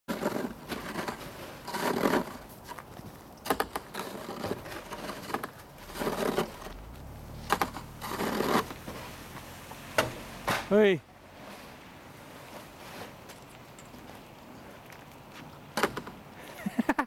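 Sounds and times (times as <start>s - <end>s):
shovel scraping through snow: 0.1s - 2.7s, 3.5s - 9.4s.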